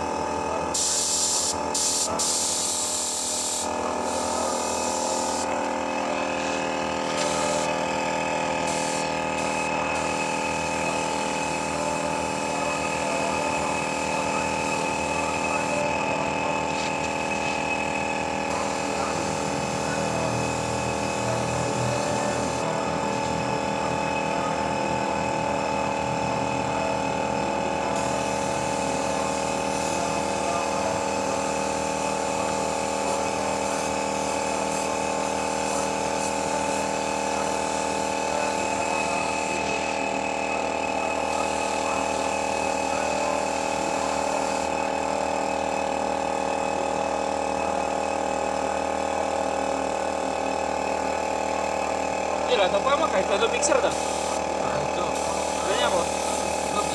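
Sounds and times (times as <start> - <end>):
paint spray gun hissing: 0.0 - 56.9.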